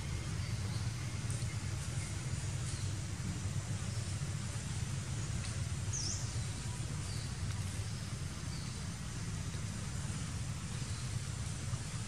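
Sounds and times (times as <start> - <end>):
bird chirp: 0.0 - 12.0.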